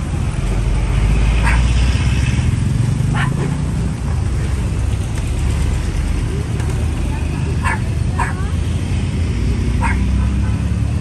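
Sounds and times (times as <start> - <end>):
street traffic rumble: 0.0 - 11.0
dog yelping: 7.6 - 8.5, 9.8 - 10.2.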